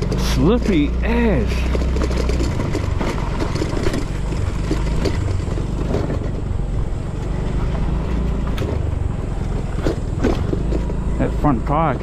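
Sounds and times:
scooter engine running: 0.0s - 12.0s
tyres clicking on gravel: 0.0s - 12.0s.

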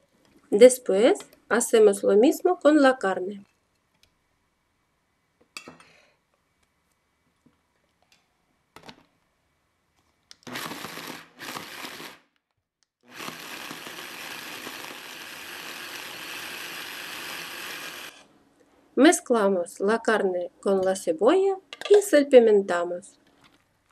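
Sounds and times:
food chopper motor running: 10.5s - 12.2s, 13.0s - 18.2s.

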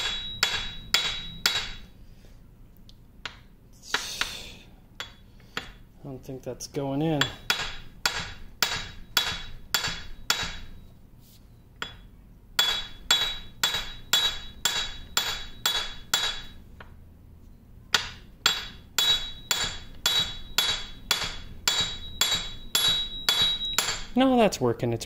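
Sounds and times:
hammer tapping on steel: 0.0s - 1.8s, 7.2s - 10.7s, 11.8s - 17.0s, 17.9s - 24.2s.

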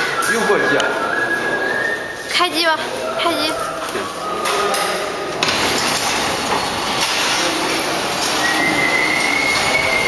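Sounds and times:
packing machine clatter: 5.4s - 10.0s.

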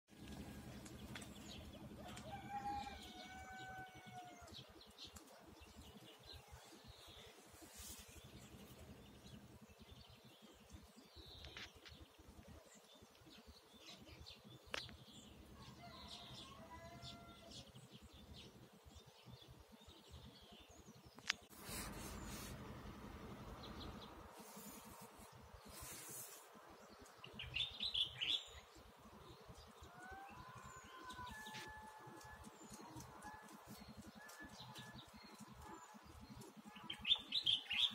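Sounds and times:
birds chirping: 0.1s - 37.9s
long pitched bird calls: 29.9s - 35.7s.

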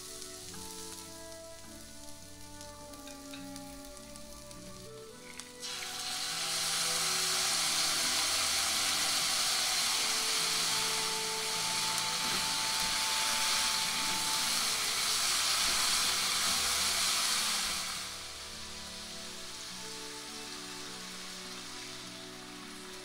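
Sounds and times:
vegetables sizzling in a wok: 0.0s - 23.0s.

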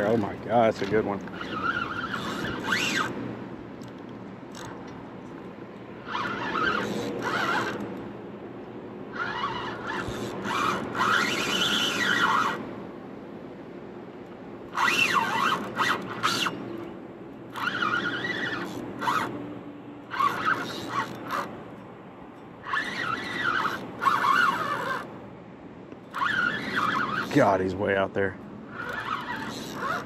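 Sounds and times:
fishing reel drag squealing: 0.8s - 3.2s, 4.5s - 4.8s, 6.0s - 7.9s, 9.1s - 12.6s, 14.7s - 16.7s, 17.5s - 19.4s, 20.1s - 21.5s, 22.6s - 25.1s, 26.0s - 27.7s, 28.7s - 30.0s.

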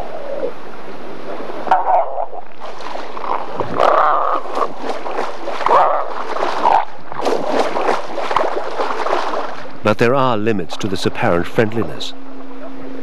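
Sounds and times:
elephant seals calling: 1.2s - 7.2s.

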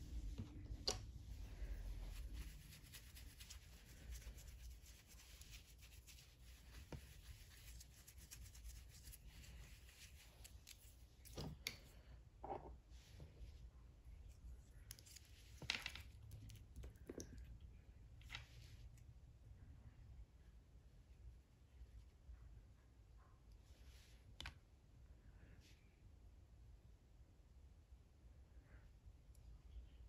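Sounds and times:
soft brush sweep: 0.0s - 11.0s.

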